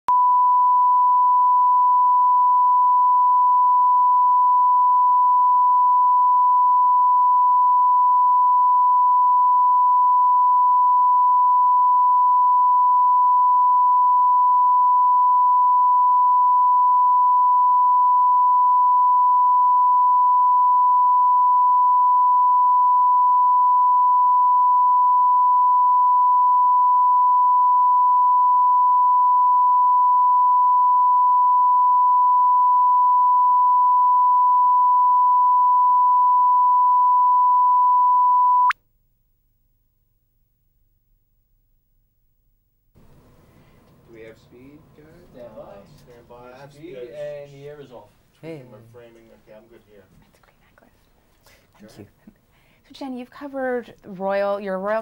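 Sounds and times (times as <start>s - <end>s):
steady pure test tone: 0.1s - 38.8s.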